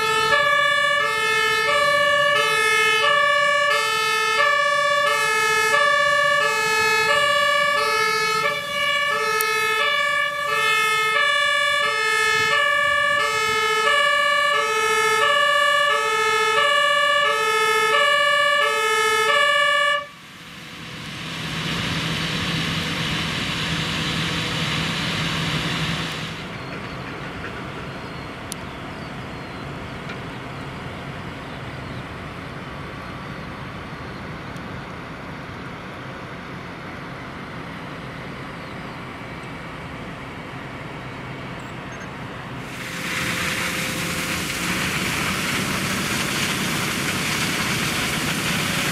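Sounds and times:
two-tone siren: 0:00.0 - 0:20.5
fire truck engine: 0:00.0 - 0:48.9
loud rushing hiss: 0:42.6 - 0:48.9.

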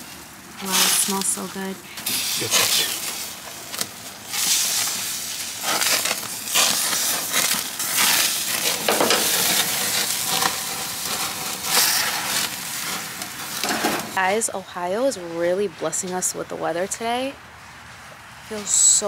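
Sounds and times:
kebab sizzling on a grill: 0:00.0 - 0:14.2
sharp crackles of fire: 0:00.0 - 0:19.0.

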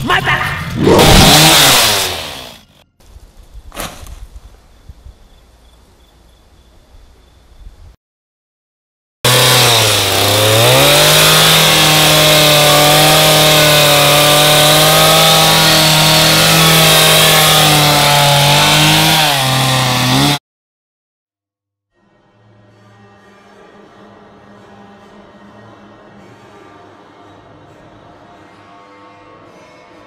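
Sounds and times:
chainsaw engine running: 0:00.6 - 0:02.8, 0:09.3 - 0:20.4.

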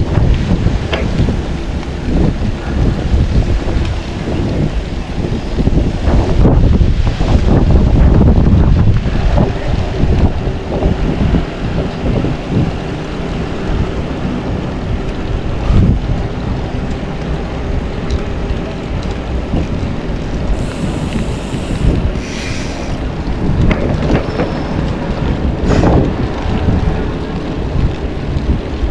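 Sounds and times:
wind buffeting microphone: 0:00.0 - 0:28.9
brief bright hiss: 0:20.7 - 0:23.0.

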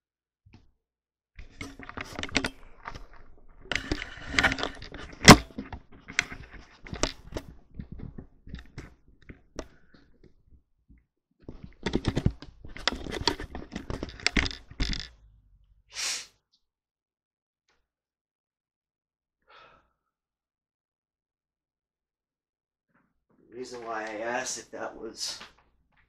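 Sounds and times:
handling noise clicks and knocks: 0:01.4 - 0:10.3, 0:11.4 - 0:15.2.

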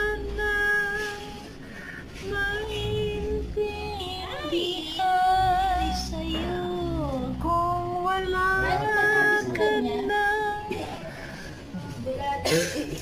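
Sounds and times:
woman singing slowly: 0:02.2 - 0:10.8.

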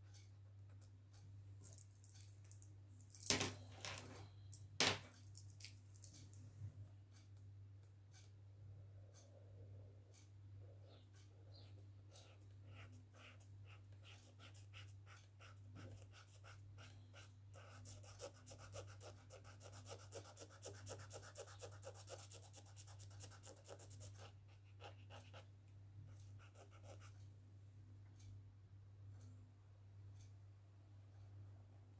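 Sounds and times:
low steady hum: 0:00.0 - 0:31.9
marker scratching on paper: 0:11.6 - 0:25.4.

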